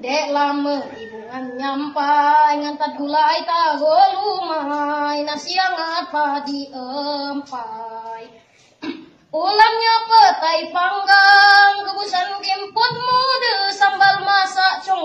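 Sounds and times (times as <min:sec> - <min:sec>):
boy singing solo: 0:09.4 - 0:15.0.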